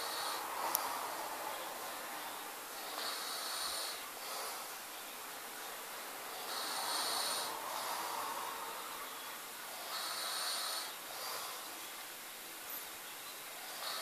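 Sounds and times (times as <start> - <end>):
man snoring: 0.0 - 1.0, 2.8 - 4.7, 6.3 - 9.0, 9.7 - 11.7, 13.6 - 14.0.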